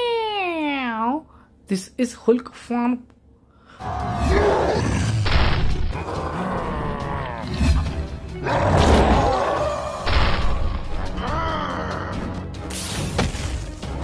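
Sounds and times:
cartoon background music: 3.8s - 14.0s
monster voice growling: 4.1s - 5.3s, 5.9s - 9.9s.

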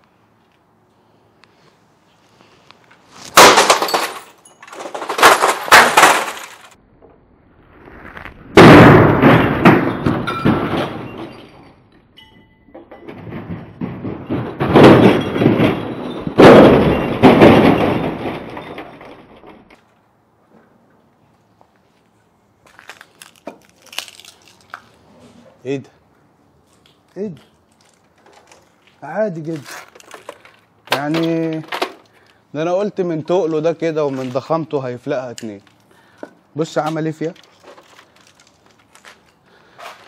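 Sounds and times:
bat smashing plastic case: 3.2s - 6.8s
plastic cracking and clattering: 3.3s - 6.8s, 22.7s - 25.0s, 26.7s - 32.4s, 37.3s - 39.4s.

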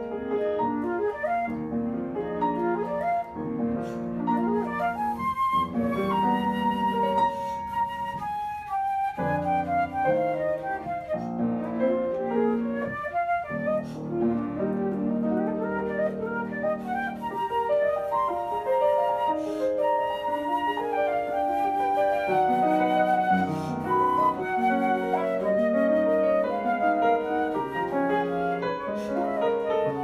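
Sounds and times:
flute melody: 0.0s - 30.0s
piano chords: 0.0s - 30.0s.

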